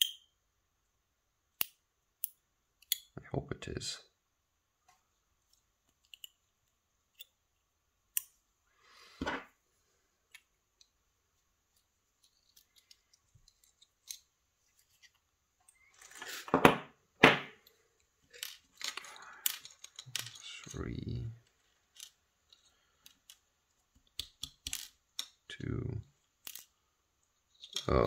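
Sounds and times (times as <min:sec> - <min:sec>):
small metal clicks and scrapes: 0:05.5 - 0:06.5, 0:11.7 - 0:16.4, 0:17.6 - 0:25.4, 0:26.4 - 0:28.0
knock: 0:16.5 - 0:17.5.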